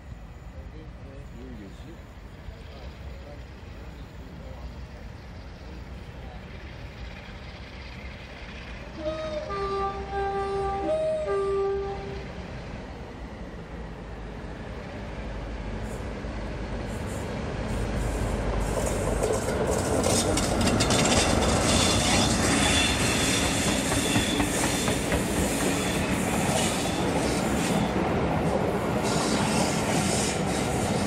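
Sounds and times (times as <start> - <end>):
train rumbling past: 0.0 - 31.0
two-tone train horn: 8.9 - 12.3
wheels clicking over rail joints: 18.5 - 27.4
faint wheel squeal: 20.1 - 27.9.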